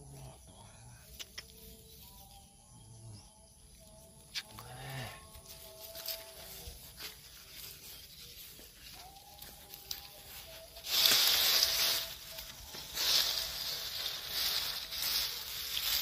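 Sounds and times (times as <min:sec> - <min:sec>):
dry palm frond rustling: 0:05.2 - 0:16.0.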